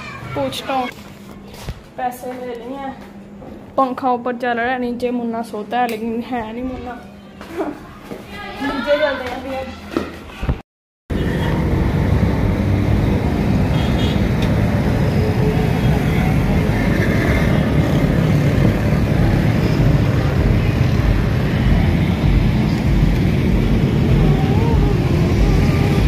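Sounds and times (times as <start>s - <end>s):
road traffic rumble: 11.1s - 26.0s.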